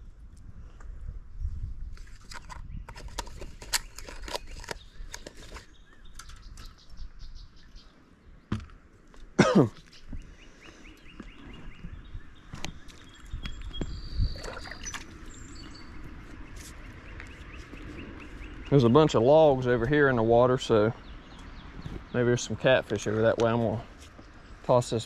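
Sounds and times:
faint bird chirps: 9.8 - 19.1
rustling dry leaves and sticks: 15.0 - 18.7.

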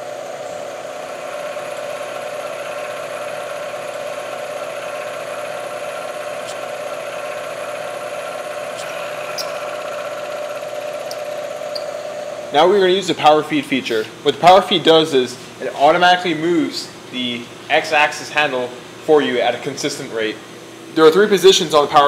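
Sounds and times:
milling machine cutting metal: 0.0 - 12.6.

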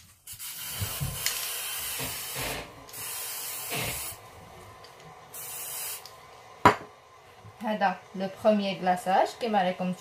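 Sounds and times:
aerosol can hissing: 0.2 - 4.2, 5.3 - 6.1.

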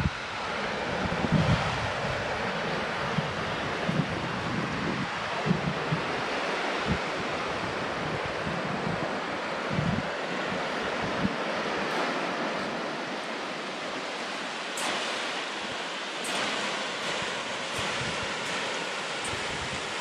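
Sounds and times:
wind buffeting microphone: 0.0 - 14.4, 15.6 - 20.0
sea surf washing in: 0.0 - 20.0.

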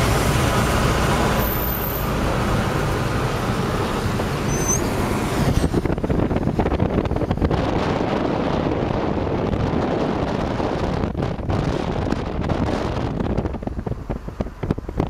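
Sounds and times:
car road and engine noise: 0.0 - 15.0
wind buffeting microphone: 2.1 - 15.0.

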